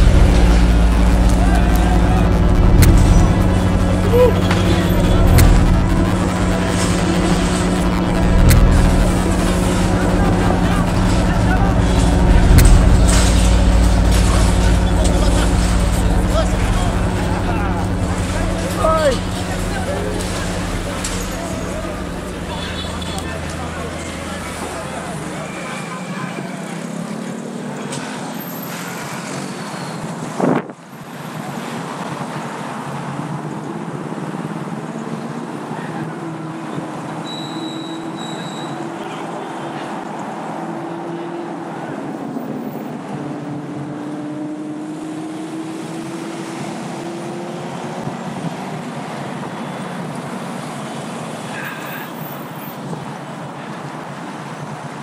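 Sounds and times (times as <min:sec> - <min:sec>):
sharp knock: 0:00.0 - 0:25.4
low engine hum: 0:00.0 - 0:25.5
city traffic noise: 0:00.0 - 0:55.0.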